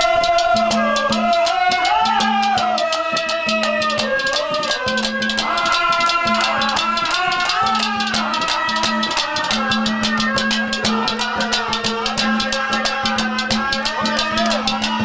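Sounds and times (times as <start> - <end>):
fast drum and rattle rhythm: 0.0 - 15.0.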